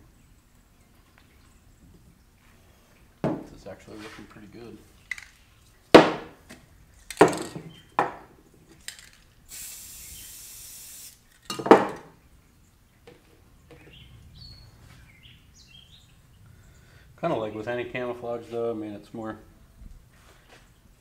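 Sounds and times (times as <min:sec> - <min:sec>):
hard objects knocking on workbench: 0:03.2 - 0:03.5, 0:06.0 - 0:06.3, 0:07.2 - 0:08.3, 0:11.5 - 0:12.1
aerosol spray can hissing: 0:09.5 - 0:11.4.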